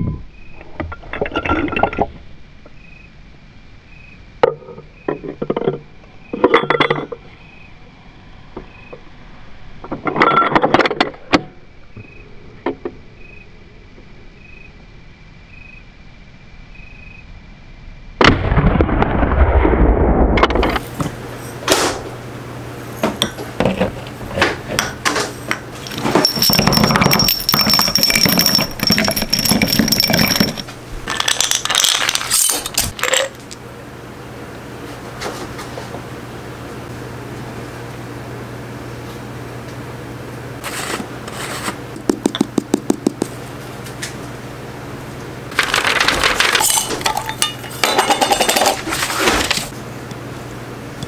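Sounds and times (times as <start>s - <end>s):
glass jars and bullets clinking: 1.1s - 2.1s, 24.8s - 33.4s, 45.5s - 49.7s
rifle shot boom: 18.2s - 20.5s.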